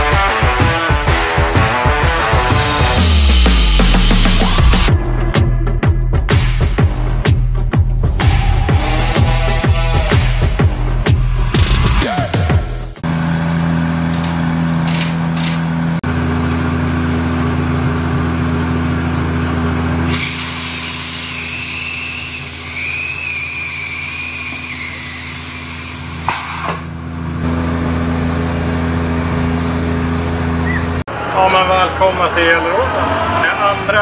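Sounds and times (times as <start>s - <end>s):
loud hissing: 20.1s - 26.8s.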